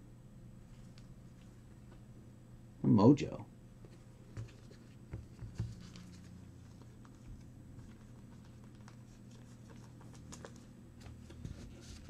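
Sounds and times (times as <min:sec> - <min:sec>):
low room hum: 0:00.0 - 0:12.0
trading cards rustling and clicking: 0:04.3 - 0:12.0.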